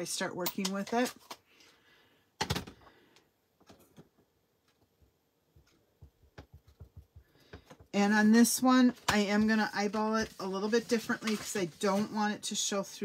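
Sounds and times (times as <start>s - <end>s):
faint clicks and taps: 3.6s - 8.0s.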